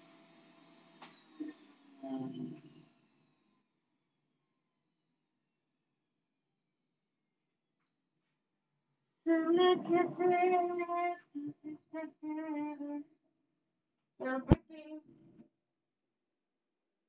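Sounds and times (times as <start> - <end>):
woman singing: 9.3 - 13.1.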